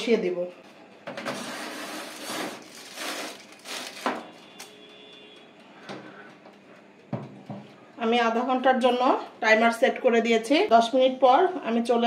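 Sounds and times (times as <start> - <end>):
baking tray scraping on rack: 1.2 - 3.8
aluminium foil crinkling: 1.4 - 4.7.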